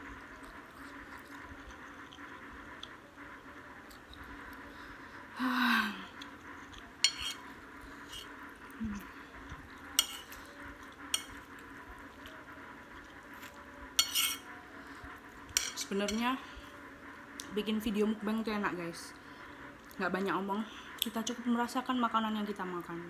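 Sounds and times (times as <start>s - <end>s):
cutlery clinking on ceramic plate: 7.0s - 7.4s, 14.0s - 14.4s
person humming: 8.8s - 9.2s.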